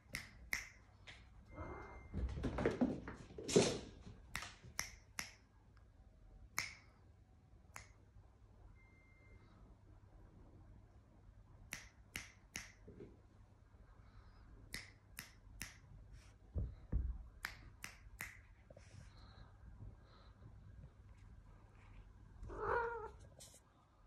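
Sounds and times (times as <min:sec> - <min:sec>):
finger snaps: 0:00.0 - 0:01.2, 0:04.3 - 0:05.5, 0:06.5 - 0:07.0, 0:07.7 - 0:08.0, 0:11.7 - 0:12.8, 0:14.7 - 0:16.0, 0:17.4 - 0:18.6.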